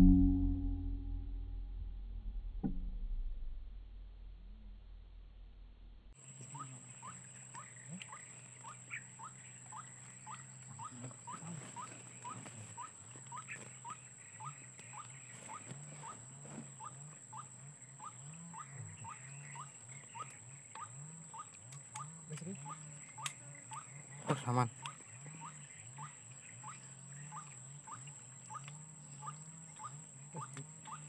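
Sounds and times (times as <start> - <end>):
low wavering hum: 0.0 - 31.0
waterhen calling: 6.3 - 31.0.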